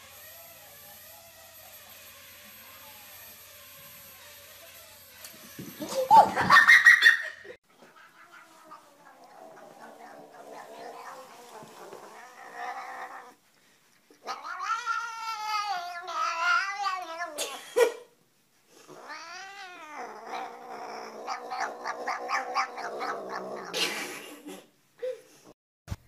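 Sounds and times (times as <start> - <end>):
cat yowling: 7.8 - 13.4, 14.2 - 17.6, 19.0 - 23.8.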